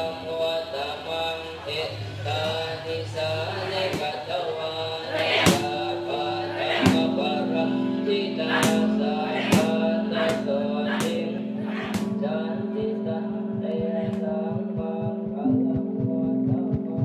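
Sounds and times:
background music with held notes: 0.0 - 17.0.

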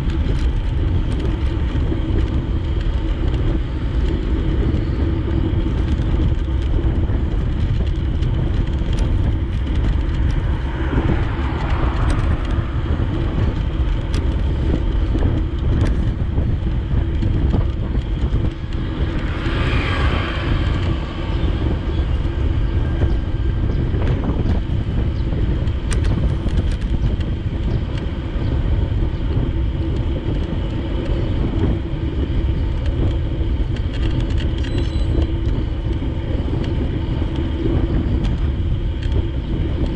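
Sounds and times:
vehicles passing: 0.0 - 39.9
wind rumble on microphone: 0.0 - 39.9.

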